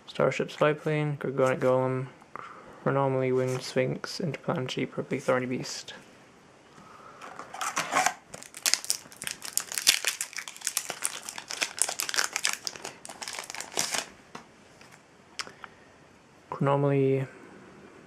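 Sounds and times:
foil wrapper crinkling: 7.5 - 14.2.

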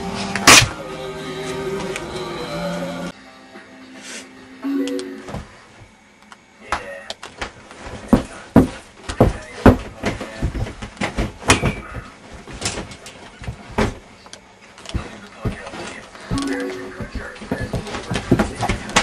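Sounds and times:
thumps and knocks on a couch: 7.4 - 14.1, 14.9 - 19.0.

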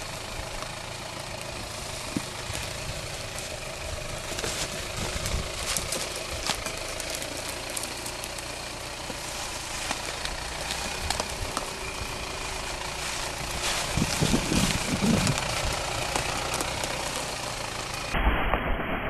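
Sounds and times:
diesel engine at low revs: 0.0 - 18.2.

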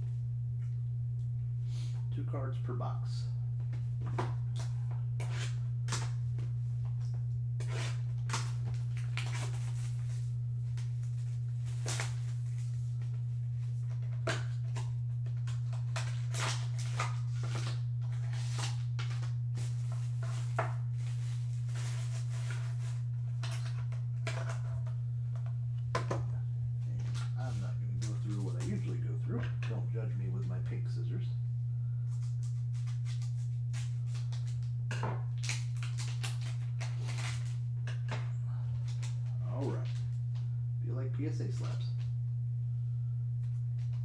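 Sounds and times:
steady low hum: 0.0 - 44.0
cardboard boxes and plastic rustling: 3.7 - 24.9, 32.2 - 38.1.

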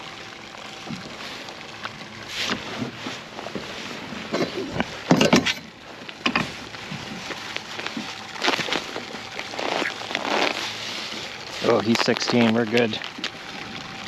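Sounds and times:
rustling: 5.9 - 13.6.

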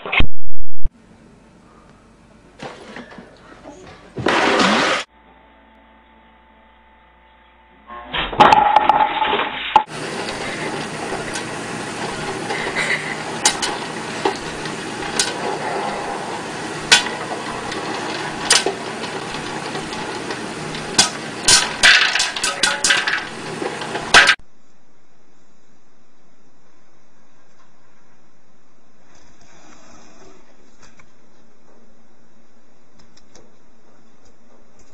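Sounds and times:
loud clatter: 4.2 - 5.1, 8.4 - 24.4
popcorn popping: 8.4 - 24.4.

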